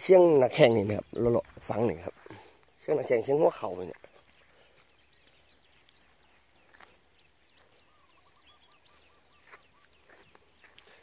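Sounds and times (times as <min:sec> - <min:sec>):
distant birds chirping: 0:00.0 - 0:11.0
quick bird calls: 0:04.0 - 0:11.0.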